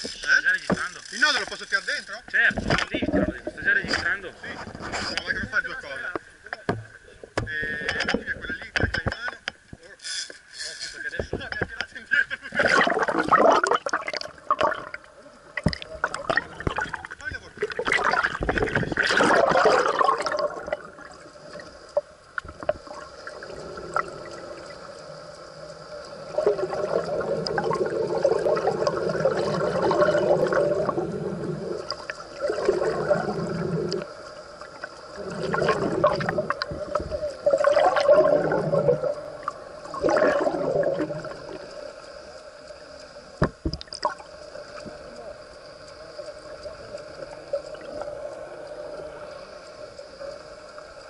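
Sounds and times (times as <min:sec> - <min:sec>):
faint steady hum: 0:00.0 - 0:51.0
water gurgling underwater: 0:02.6 - 0:04.0, 0:12.5 - 0:25.0, 0:26.0 - 0:41.7, 0:43.4 - 0:44.9, 0:46.5 - 0:48.5.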